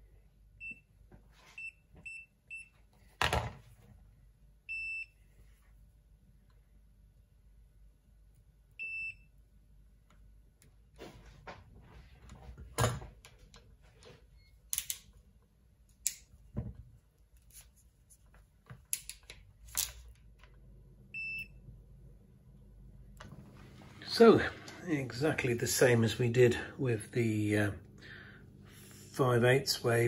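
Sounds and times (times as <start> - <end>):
multimeter beeps: 1.6 - 2.8, 4.7 - 5.2, 8.8 - 9.3, 21.1 - 21.6
crimping tool clicking on metal: 14.7 - 15.1.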